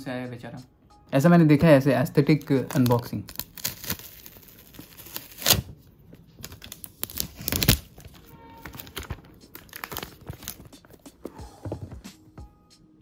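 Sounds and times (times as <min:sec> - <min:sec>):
plastic film crinkling: 0:02.1 - 0:11.0
plastic film tearing: 0:02.2 - 0:05.8, 0:06.4 - 0:10.7.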